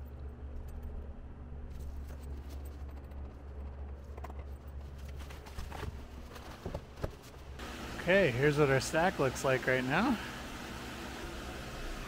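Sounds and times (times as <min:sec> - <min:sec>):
dehumidifier and fan humming: 0:04.8 - 0:12.0.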